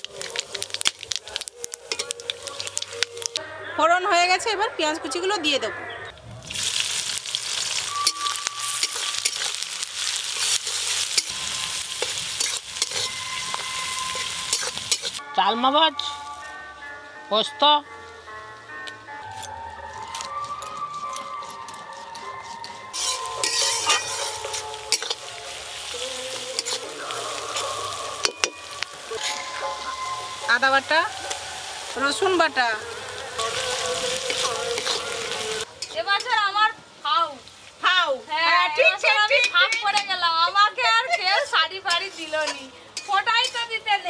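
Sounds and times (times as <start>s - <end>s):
onions sizzling in oil: 0.0s - 3.4s, 6.2s - 15.3s, 16.0s - 44.0s
metal spatula scraping a pan: 0.2s - 3.3s, 7.7s - 15.2s, 20.6s - 25.5s, 26.4s - 31.4s, 41.0s - 43.8s.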